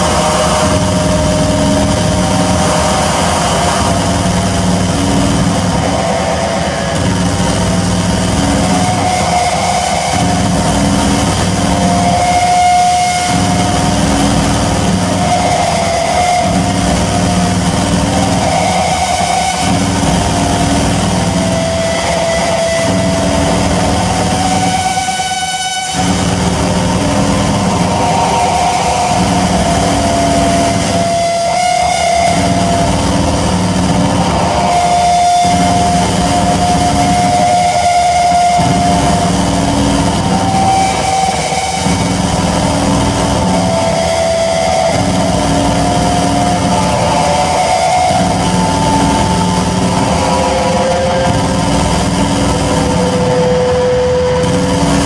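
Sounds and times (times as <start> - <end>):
electronic drone music: 0.0 - 55.0.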